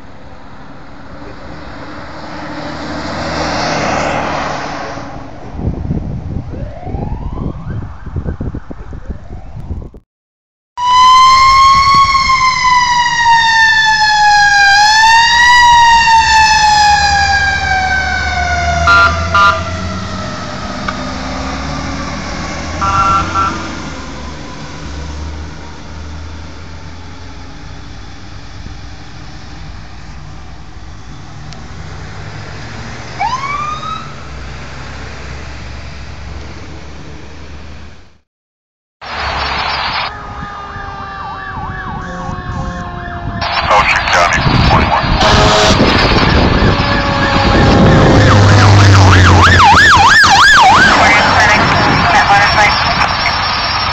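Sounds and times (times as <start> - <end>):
fire truck siren wailing: 6.4 - 9.9, 10.8 - 35.2, 39.0 - 53.9
siren whoop: 6.5 - 9.7, 10.8 - 25.1, 33.2 - 34.3, 39.1 - 53.9
horn blasts: 18.8 - 19.7, 22.8 - 23.7, 42.0 - 43.0, 45.2 - 46.0
truck engine rumble: 39.0 - 53.9.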